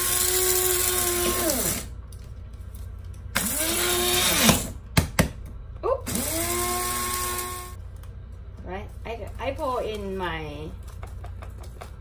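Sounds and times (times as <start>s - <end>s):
coffee grinder whining: 0.0s - 2.0s, 3.4s - 4.7s, 6.1s - 7.8s.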